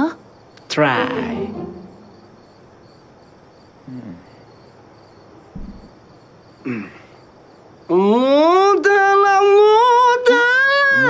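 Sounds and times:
crickets chirping: 0:00.0 - 0:11.0
short low thump: 0:05.6 - 0:06.0.

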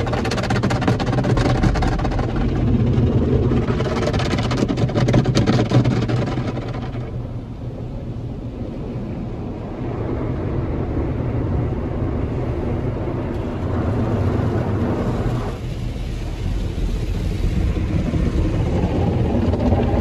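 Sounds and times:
brushes and water beating on car: 0:00.0 - 0:07.2, 0:13.2 - 0:20.0.

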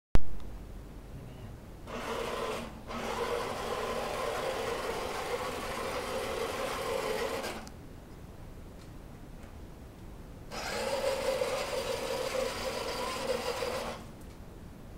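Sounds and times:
toy truck motor whirring: 0:01.9 - 0:07.7, 0:10.5 - 0:14.1.

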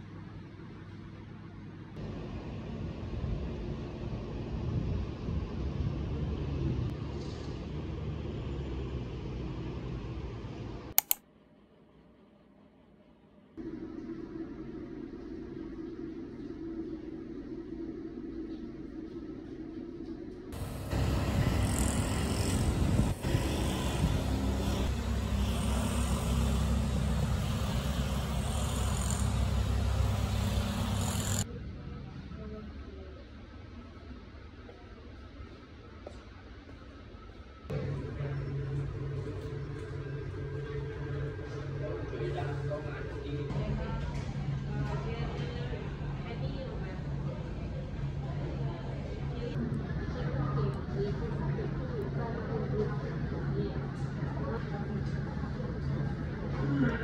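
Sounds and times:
sharp clicks: 0:11.0 - 0:11.2
cars passing with tyre hiss: 0:20.6 - 0:31.4.

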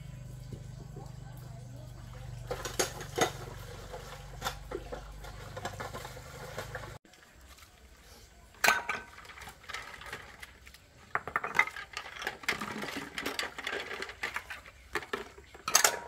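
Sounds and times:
dishes and utensils clinking: 0:02.4 - 0:07.0, 0:08.6 - 0:10.4, 0:11.1 - 0:16.0.

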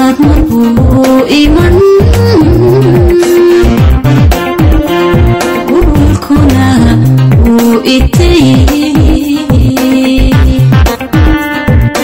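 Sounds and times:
woman singing: 0:00.0 - 0:04.2, 0:04.8 - 0:12.0
synthesizer backing: 0:00.0 - 0:12.0
drum beat: 0:02.1 - 0:07.8, 0:10.4 - 0:12.0.

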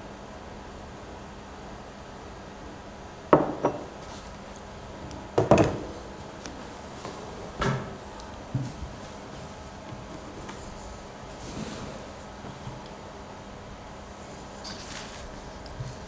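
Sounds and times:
objects knocking on a table: 0:03.4 - 0:03.9, 0:05.4 - 0:05.8.

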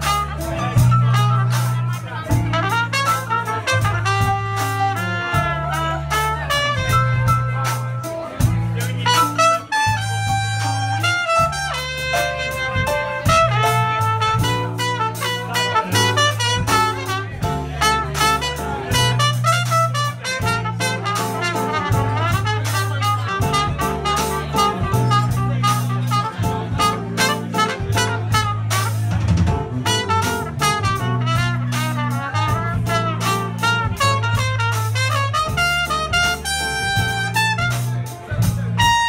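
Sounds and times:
saxophone: 0:00.0 - 0:07.8, 0:08.8 - 0:29.1, 0:29.8 - 0:39.0
drum kit steady beat: 0:00.0 - 0:39.0
electric bass guitar: 0:00.0 - 0:39.0
trumpet melody: 0:00.0 - 0:39.0.

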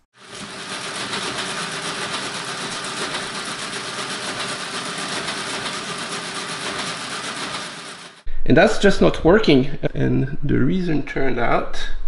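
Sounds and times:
mechanical calculator chatter: 0:00.0 - 0:08.3.

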